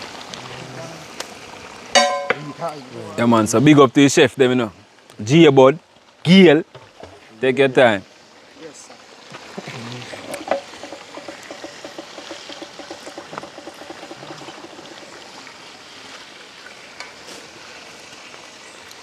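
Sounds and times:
steady hiss: 0.0 - 19.0
liquid gurgling: 8.0 - 19.0.

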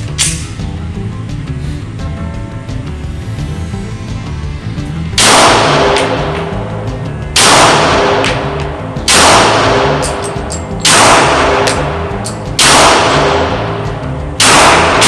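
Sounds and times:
background music: 0.0 - 15.0
pistol shots echoing indoors: 5.2 - 6.5, 7.4 - 15.0.

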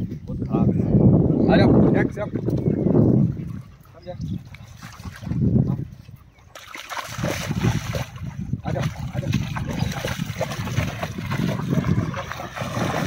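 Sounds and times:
dog splashing through water: 4.4 - 5.7, 6.5 - 13.0.

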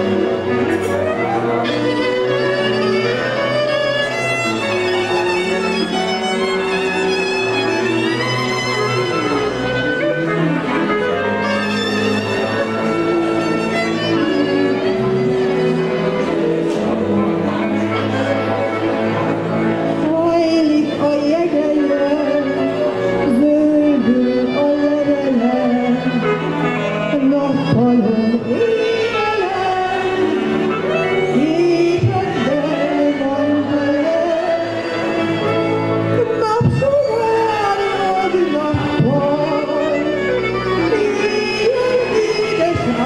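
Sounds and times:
string band playing: 0.0 - 43.0
woman singing into a microphone: 20.0 - 26.4, 27.0 - 30.6, 31.2 - 35.2, 36.2 - 40.2, 40.8 - 43.0.

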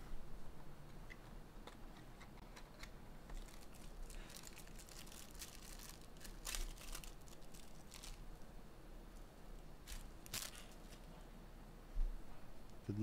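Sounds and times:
plastic wrappers crinkling: 3.3 - 8.4, 9.8 - 11.1.

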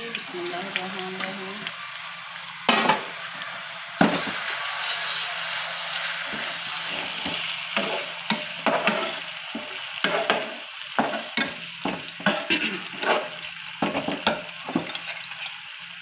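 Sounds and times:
vegetables sizzling in hot oil: 0.0 - 16.0
metal spatula scraping pan: 6.3 - 15.6.

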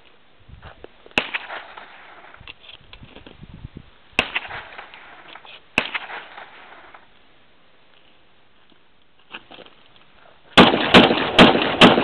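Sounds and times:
shotgun shots with ringing echo: 1.2 - 2.3, 4.2 - 5.2, 5.8 - 7.0, 10.6 - 12.0.

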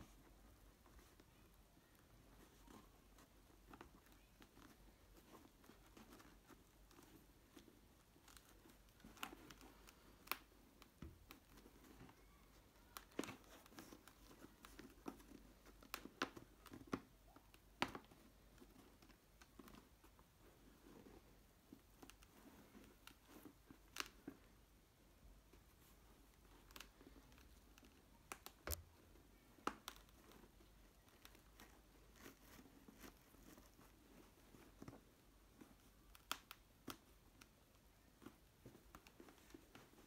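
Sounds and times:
hands handling plastic helmet: 0.0 - 24.7, 25.3 - 40.0
sharp clicks and knocks: 28.6 - 29.0.

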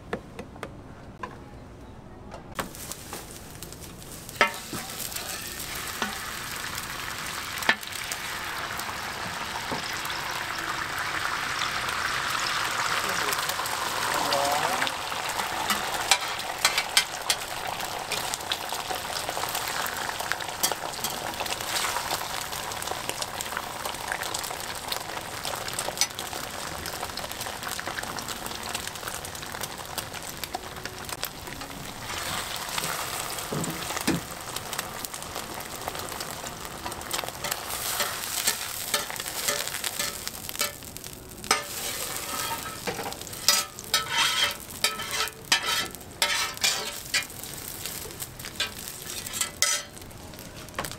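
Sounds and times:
egg sizzling on a griddle: 2.6 - 50.9
metal spatula scraping griddle: 4.1 - 6.2, 15.3 - 17.5, 37.2 - 40.8, 41.4 - 47.3, 48.6 - 50.0.

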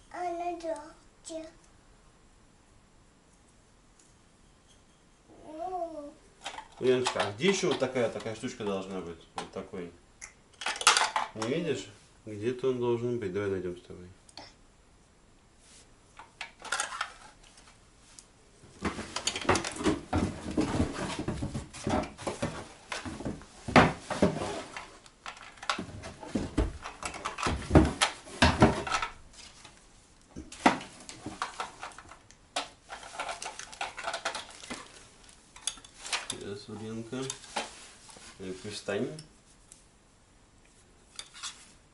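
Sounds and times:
small hard objects clattering: 32.9 - 37.7.

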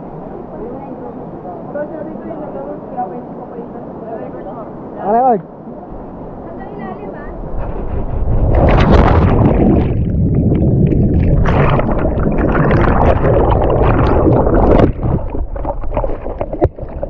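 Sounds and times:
underwater bubbling pool water: 8.1 - 17.0.

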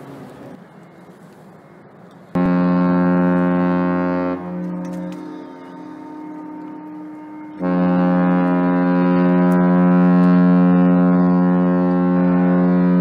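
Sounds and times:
ship horn long blast: 2.4 - 13.0.

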